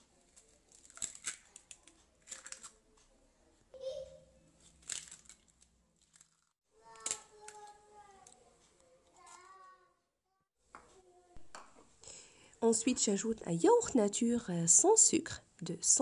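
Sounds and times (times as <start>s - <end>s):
eggshells cracking on bowl rim: 0.7s - 2.8s, 4.7s - 7.7s.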